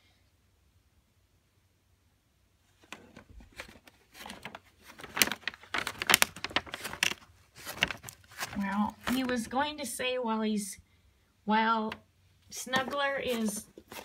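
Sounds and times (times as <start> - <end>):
envelope crinkling: 2.8 - 9.5, 12.6 - 14.0.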